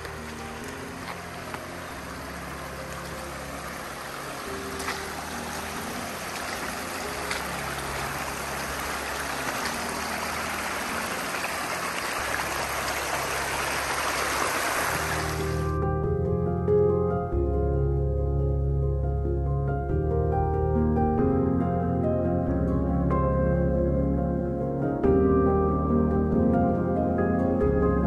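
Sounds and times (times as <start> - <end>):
stream running over rocks: 0.0 - 15.8.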